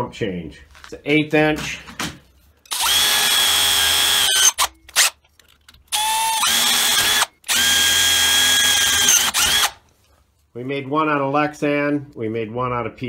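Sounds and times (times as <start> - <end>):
cordless drill whining: 2.7 - 5.2, 5.9 - 9.8.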